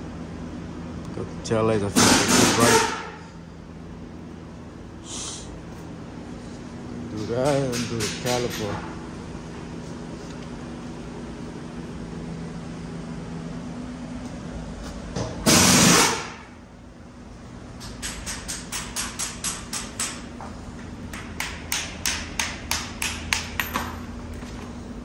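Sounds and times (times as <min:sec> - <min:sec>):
pneumatic tool burst: 0:02.0 - 0:03.1, 0:15.4 - 0:16.4.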